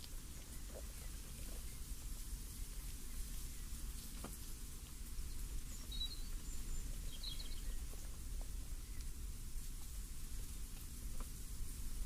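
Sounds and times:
small bird chirping: 4.9s - 9.2s.

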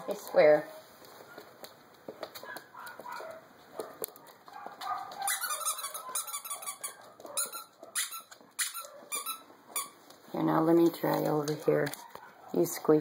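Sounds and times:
squeaky dog toy squeaking: 5.2s - 10.0s.

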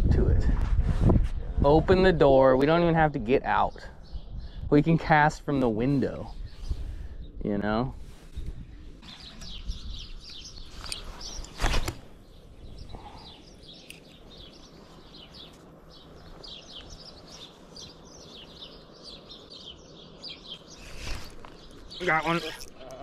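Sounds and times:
small birds chirping: 1.9s - 23.0s.

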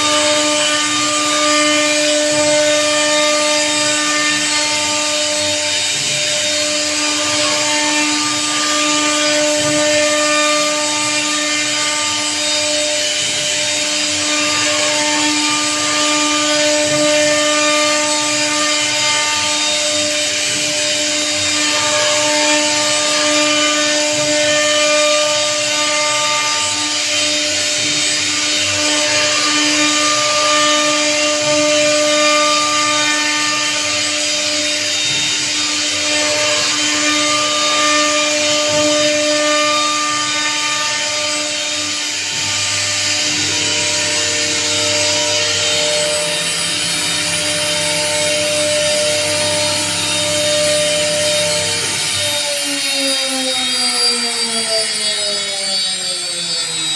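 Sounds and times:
router spindle whining: 0.0s - 56.9s
hiss of wood cutting: 26.6s - 56.9s.

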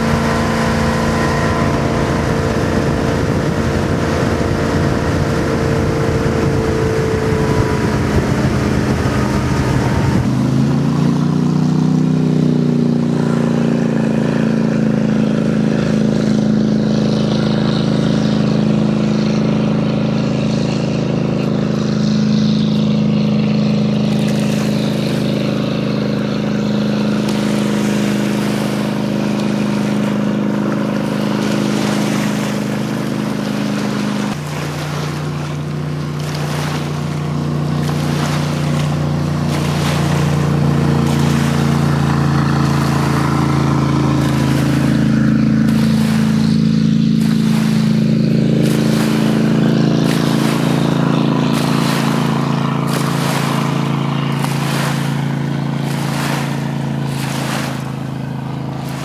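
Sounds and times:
jet boat engine drone: 0.0s - 59.0s.

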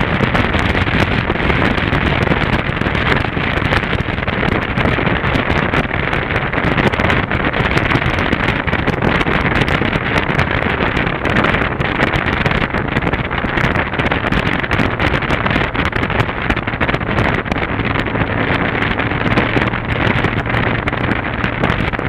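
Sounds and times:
motorcycle engine running: 0.0s - 22.0s
wind buffeting microphone: 0.0s - 22.0s.

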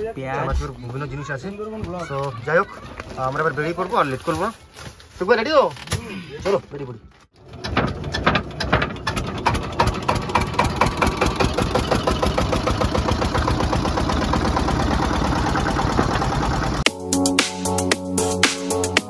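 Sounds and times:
boat engine chugging: 8.9s - 16.8s.

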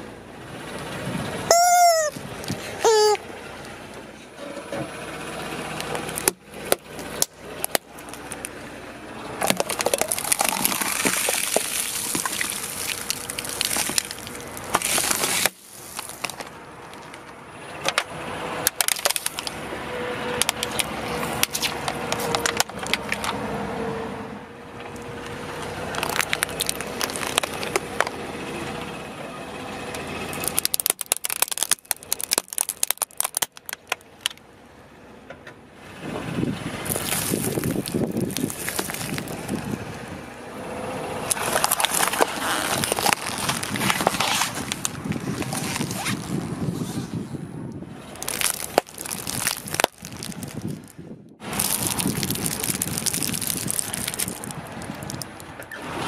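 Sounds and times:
tyre crushing objects: 9.4s - 17.1s, 36.9s - 39.7s, 41.3s - 46.6s, 48.2s - 50.9s, 51.5s - 55.2s.

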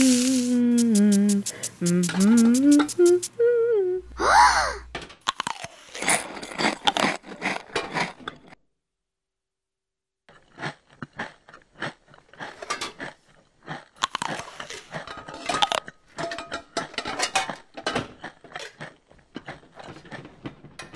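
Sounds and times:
irregular clicks and crunches: 4.9s - 8.6s, 10.3s - 20.9s
crunchy chewing: 5.2s - 8.5s, 10.3s - 15.0s, 18.2s - 20.3s.

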